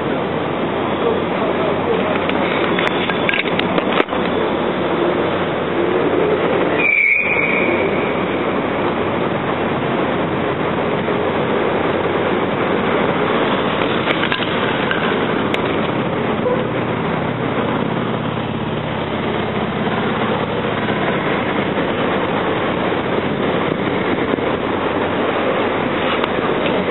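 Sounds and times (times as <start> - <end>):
heavy road traffic: 0.0 - 26.9
brief high squeal: 6.8 - 7.9.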